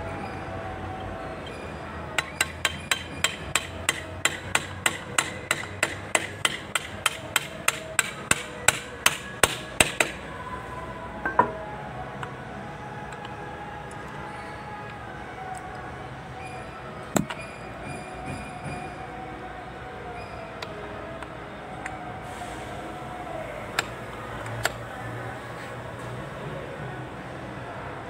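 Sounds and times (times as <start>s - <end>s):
hammer tapping metal: 2.2s - 10.2s.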